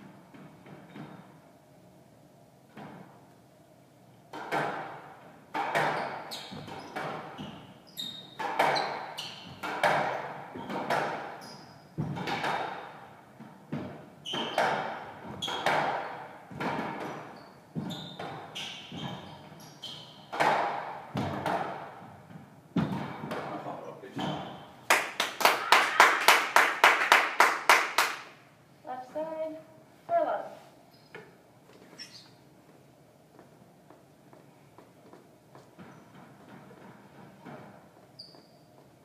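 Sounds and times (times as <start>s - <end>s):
shoes squeaking on wooden floor: 5.7s - 12.3s, 13.7s - 24.8s, 30.9s - 39.0s
squash ball hits echoing: 8.4s - 11.4s, 12.0s - 13.0s, 20.3s - 22.1s.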